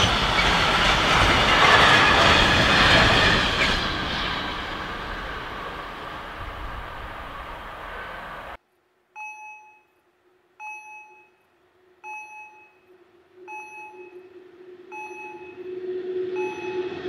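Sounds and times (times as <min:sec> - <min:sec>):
passing train rumble: 0:00.0 - 0:08.6, 0:14.2 - 0:17.0
train hum: 0:00.0 - 0:08.6, 0:13.2 - 0:17.0
level-crossing warning bell: 0:14.9 - 0:15.7, 0:16.3 - 0:17.0.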